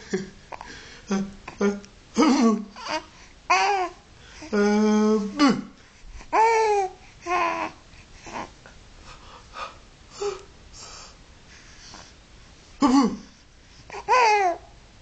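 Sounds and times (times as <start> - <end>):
baby breathy sounds: 5.8 - 12.2, 13.2 - 14.7.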